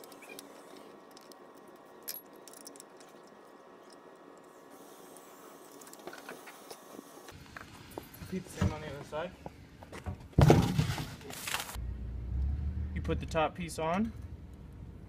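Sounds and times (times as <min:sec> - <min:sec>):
small metal hardware clinking: 0:00.0 - 0:04.2.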